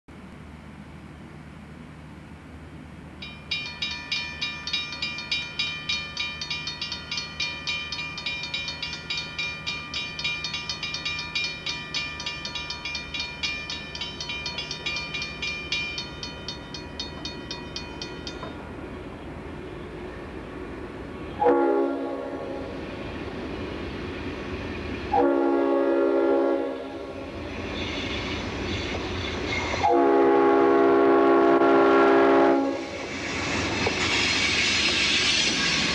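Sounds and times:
crossing warning bell ringing: 0:03.2 - 0:19.1, 0:25.2 - 0:33.0
locomotive air horn blasts: 0:21.4 - 0:22.7, 0:25.1 - 0:27.1, 0:29.8 - 0:33.0.

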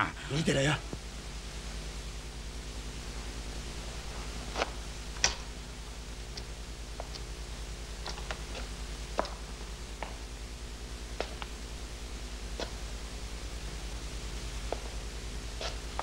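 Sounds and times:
film soundtrack hum and hiss: 0:00.0 - 0:16.0
footsteps and scuffs: 0:15.6 - 0:16.0.

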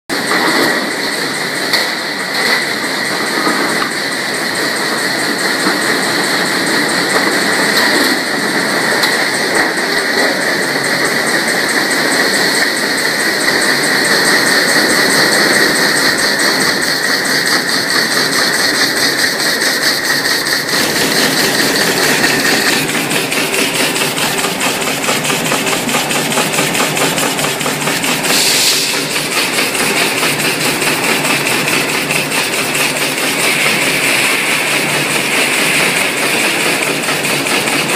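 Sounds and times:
high steady whine: 0:00.1 - 0:37.9
packaging machine clatter: 0:13.4 - 0:37.9.

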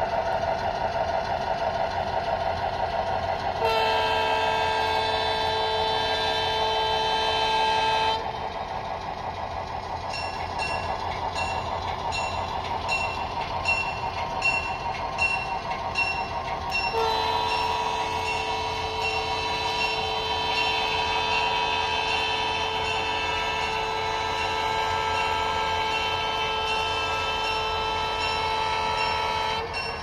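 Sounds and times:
steady engine drone: 0:00.0 - 0:30.0
locomotive horn: 0:03.6 - 0:08.4, 0:16.9 - 0:29.8
locomotive bell ringing: 0:03.6 - 0:30.0.

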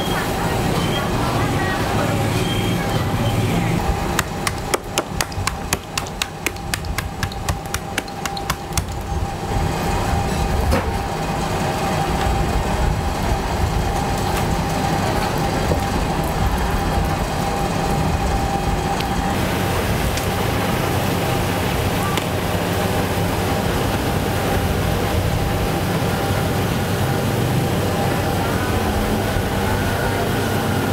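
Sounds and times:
needle pricker tapping on steel table: 0:04.2 - 0:09.0.

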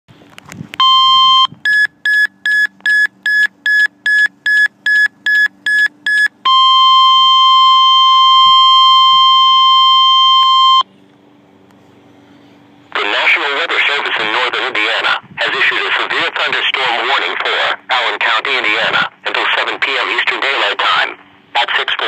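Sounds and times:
weather radio alert beeps: 0:00.8 - 0:10.8
steady alarm tone: 0:00.8 - 0:10.9.

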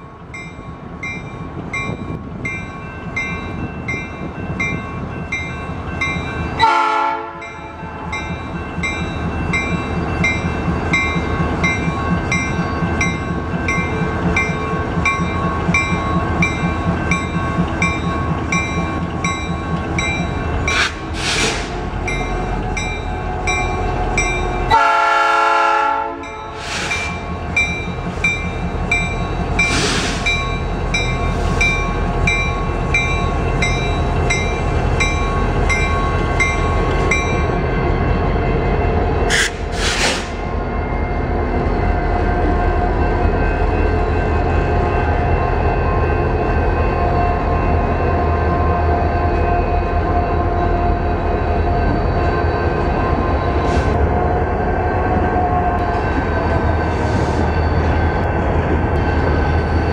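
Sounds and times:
crossing warning bell ringing: 0:00.0 - 0:21.1, 0:21.8 - 0:39.4, 0:40.4 - 0:53.8, 0:54.7 - 0:59.9
train horn blasts: 0:06.6 - 0:07.6, 0:24.6 - 0:26.6.

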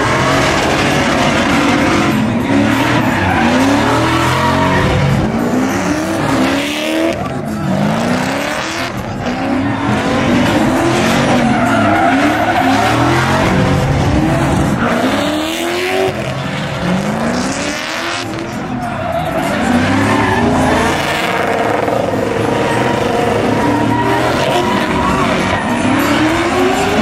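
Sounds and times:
car engines revving: 0:00.0 - 0:27.0
tyres screeching: 0:00.0 - 0:27.0.

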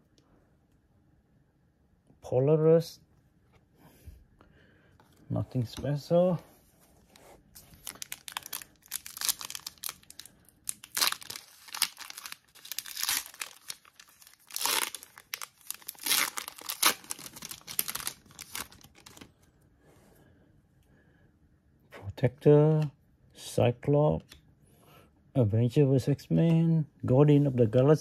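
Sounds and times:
wrapper being torn and crinkled: 0:07.7 - 0:19.3.

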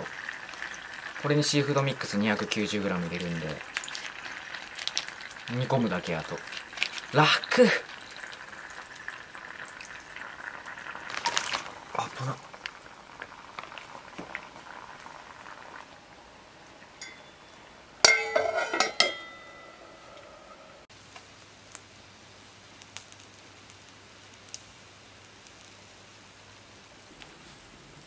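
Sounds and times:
oil bubbling in pan: 0:00.0 - 0:28.0
metal lid clanking on skillet: 0:17.0 - 0:20.6
faint ticks: 0:22.8 - 0:24.7.

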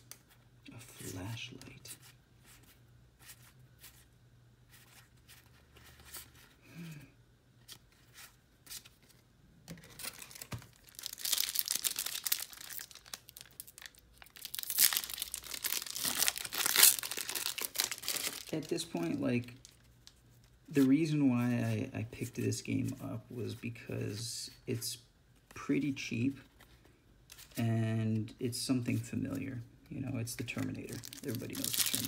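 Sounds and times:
cards being handled: 0:07.6 - 0:21.1
foil wrapper crinkling and tearing: 0:09.8 - 0:20.2, 0:30.6 - 0:32.0.

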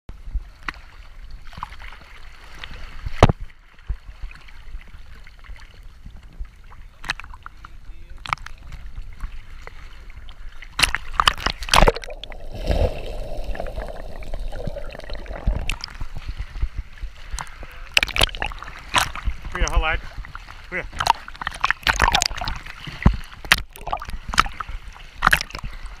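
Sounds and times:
water splashes: 0:00.3 - 0:26.0
water slapping against camera: 0:00.6 - 0:26.0
underwater rush of bubbles: 0:11.1 - 0:26.0.

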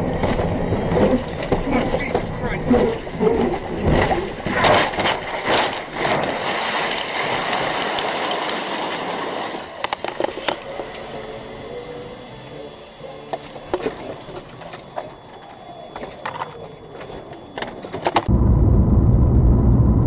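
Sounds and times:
vehicle scraping through dirt: 0:00.0 - 0:12.7.

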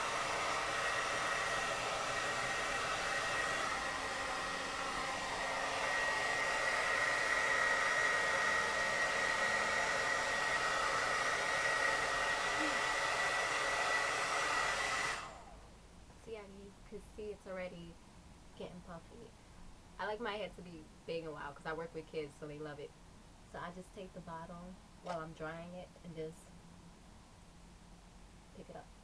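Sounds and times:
hair dryer blowing air: 0:00.0 - 0:15.6.

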